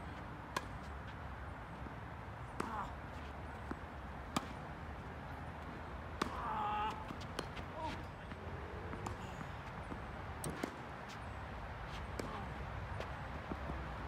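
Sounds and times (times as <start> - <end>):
tennis ball struck and bouncing: 3.6 - 4.6, 6.1 - 7.7, 9.8 - 10.8.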